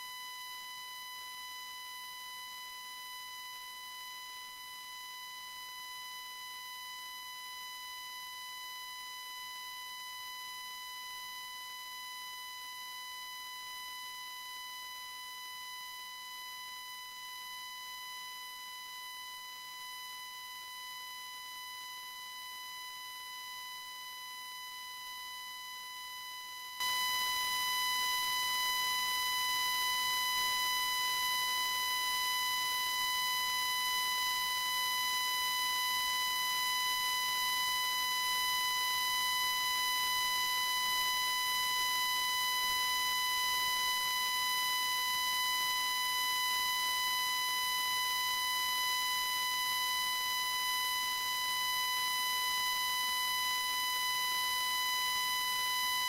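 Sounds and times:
microphone feedback tone: 26.8 - 56.0.

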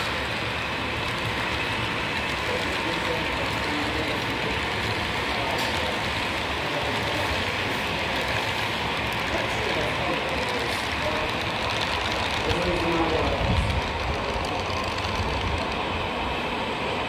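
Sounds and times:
model train cars rolling on track: 0.0 - 17.0
murmur of people talking: 0.0 - 17.0.

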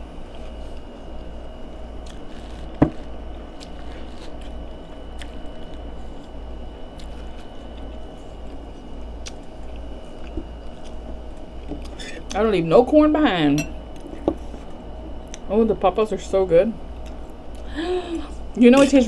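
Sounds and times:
steady background hum: 0.0 - 19.0
chewing corn on the cob: 2.0 - 11.0.

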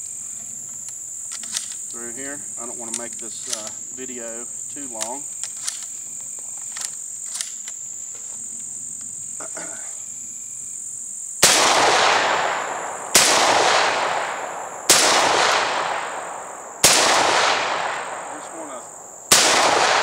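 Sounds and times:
high insect buzz: 0.0 - 20.0
shells loading clicks: 0.8 - 1.9, 2.8 - 3.8, 4.9 - 5.9, 6.6 - 7.8
shotgun shots with echo: 11.4 - 20.0.

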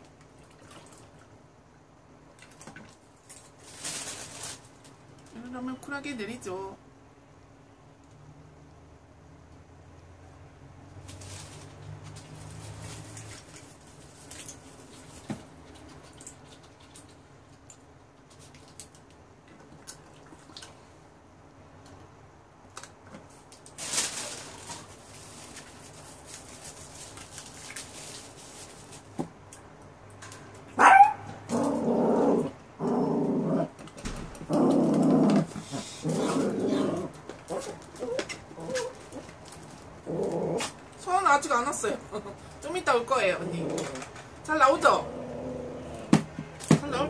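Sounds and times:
rustle: 2.6 - 5.8, 10.8 - 19.2, 22.7 - 29.6, 30.2 - 41.6
small dog yelping: 30.7 - 32.5, 36.2 - 39.2
dog whining and growling: 30.8 - 33.8, 34.4 - 39.3, 40.0 - 40.8, 43.4 - 44.1, 44.9 - 46.1.

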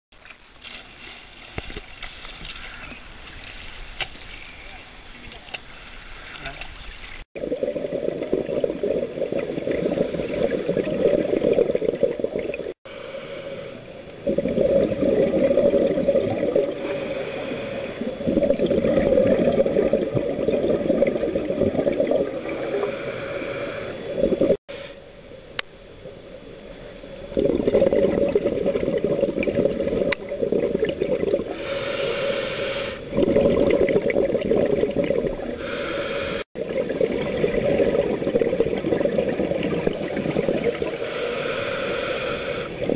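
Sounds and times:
underwater regulator bubbling: 7.4 - 12.8, 14.1 - 24.6, 27.3 - 42.9.

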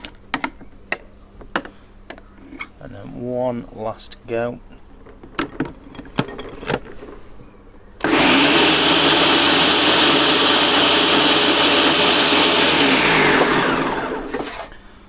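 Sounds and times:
blender motor running: 8.0 - 14.7.

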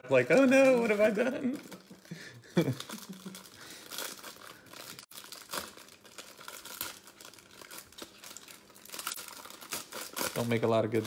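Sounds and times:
cards and wrappers crinkling: 0.0 - 11.0.

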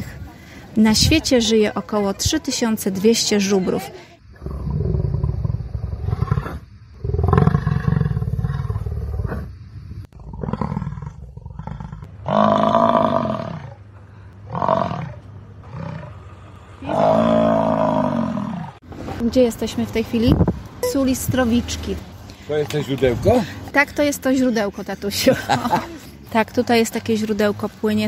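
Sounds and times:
large animal roaring: 10.2 - 13.8, 16.8 - 18.8.

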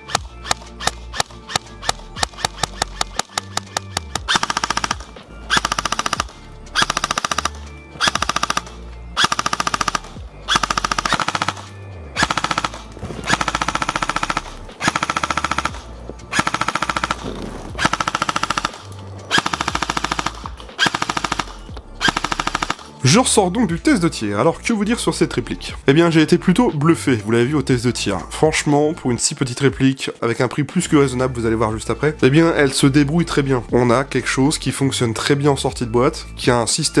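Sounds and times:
airsoft gun firing: 0.0 - 22.9.

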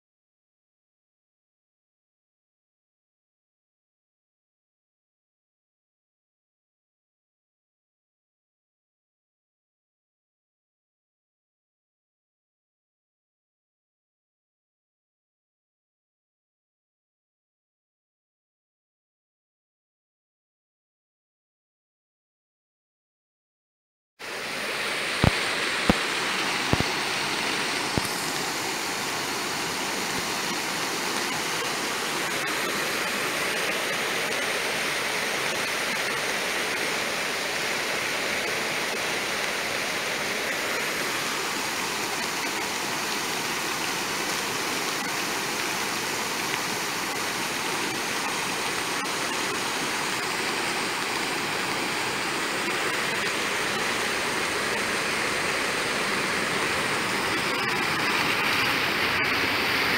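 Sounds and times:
rushing floodwater: 24.2 - 59.9.

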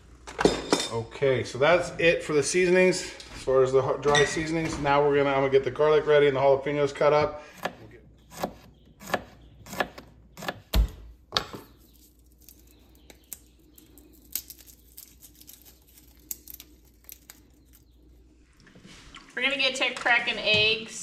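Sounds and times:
knife chopping on plastic board: 7.6 - 11.7
garlic skin crinkling: 11.6 - 18.4.

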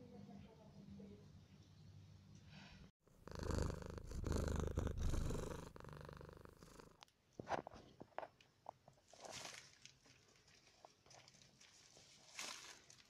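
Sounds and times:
cat purring: 3.1 - 7.0.

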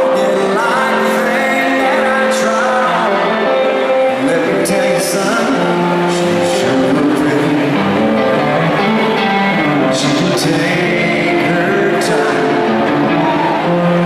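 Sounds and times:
country band playing ballad: 0.0 - 14.0
electric guitar: 0.0 - 14.0
person singing: 0.0 - 14.0.

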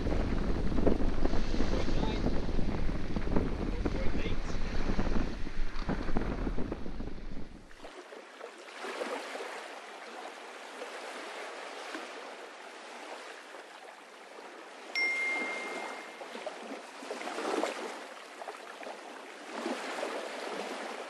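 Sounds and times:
wind buffeting microphone: 0.0 - 7.8
water rushing: 0.0 - 21.0
high ringing tone: 15.0 - 16.6.

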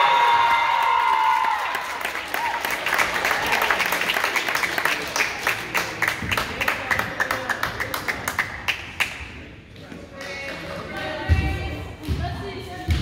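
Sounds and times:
crowd clapping: 0.0 - 9.5.

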